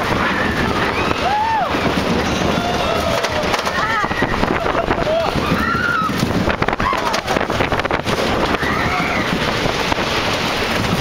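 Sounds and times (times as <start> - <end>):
riders yelling: 0.0 - 6.2
roller coaster rattling on track: 0.0 - 11.0
wind on microphone: 0.0 - 11.0.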